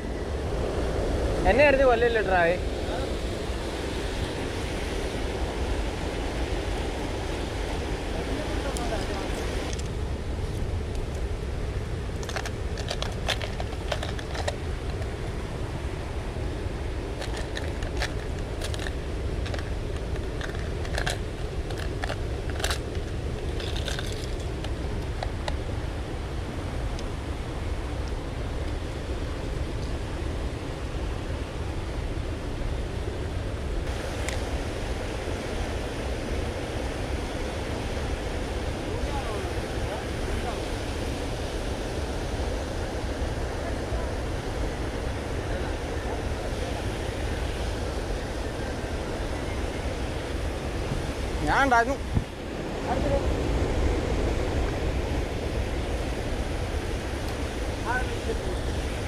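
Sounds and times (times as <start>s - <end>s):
river water rushing over weir: 0.0s - 59.0s
fishing tackle clicks and rattles: 12.2s - 15.1s, 17.2s - 25.6s.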